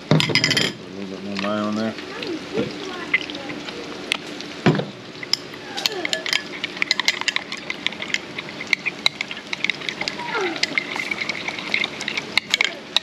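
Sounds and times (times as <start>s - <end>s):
frying oil sizzle: 0.0s - 13.0s
spoon clinking against bowl: 6.0s - 13.0s.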